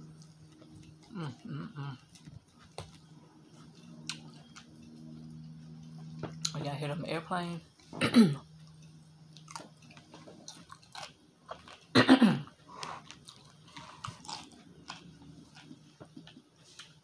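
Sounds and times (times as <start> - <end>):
chewing with crunches: 0.0 - 6.6, 7.7 - 17.0
faint steady hum: 0.0 - 17.0
person humming: 1.1 - 2.0.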